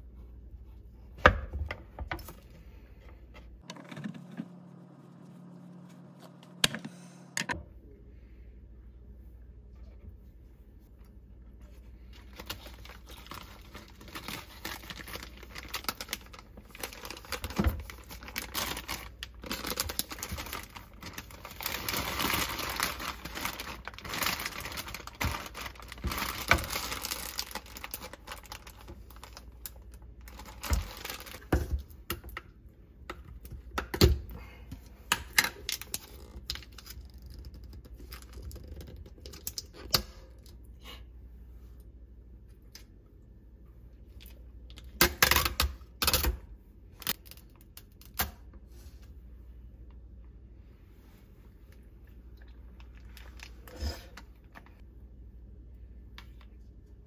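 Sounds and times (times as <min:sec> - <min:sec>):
plastic bag crinkling: 0:12.2 - 0:31.4.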